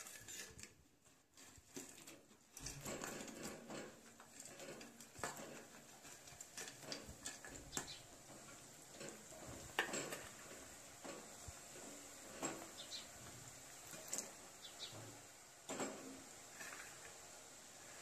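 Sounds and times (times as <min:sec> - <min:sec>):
oil sizzling: 0:05.8 - 0:18.0.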